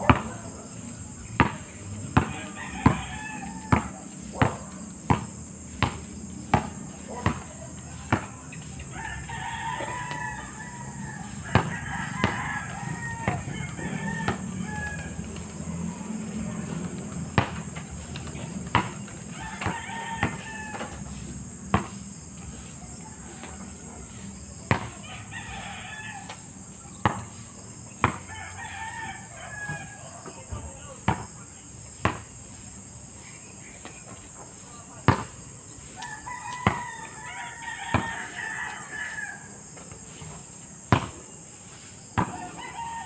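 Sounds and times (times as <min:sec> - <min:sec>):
basketball bouncing on asphalt: 0:00.0 - 0:08.7, 0:09.3 - 0:22.7, 0:23.4 - 0:28.4, 0:29.6 - 0:32.6, 0:35.0 - 0:35.5, 0:36.5 - 0:37.2, 0:37.8 - 0:38.4, 0:40.7 - 0:41.4, 0:42.0 - 0:42.8
rooster crowing: 0:00.0 - 0:30.5, 0:35.8 - 0:40.3, 0:41.8 - 0:43.0
high insect drone: 0:00.0 - 0:43.0.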